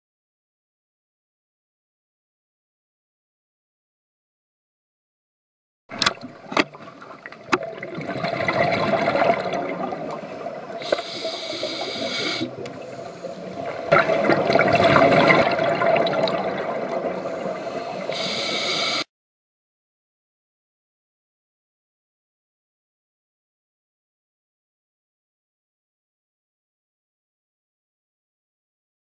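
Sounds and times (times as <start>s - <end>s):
exhaled bubbles gurgling: 5.9s - 19.0s
regulator hissing on inhalation: 10.3s - 13.6s, 17.3s - 19.1s.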